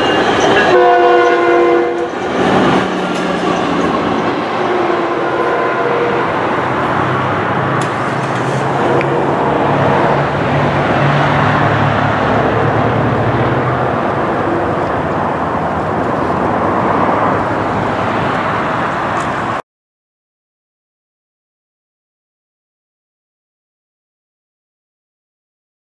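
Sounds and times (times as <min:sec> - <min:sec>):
low diesel engine drone: 0:00.0 - 0:19.6
train rumble and hiss: 0:00.0 - 0:19.6.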